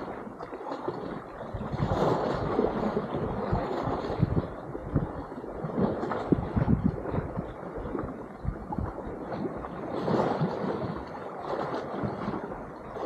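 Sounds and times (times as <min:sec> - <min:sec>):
sea water sloshing: 0:00.0 - 0:13.0
wind buffeting microphone: 0:00.0 - 0:13.0.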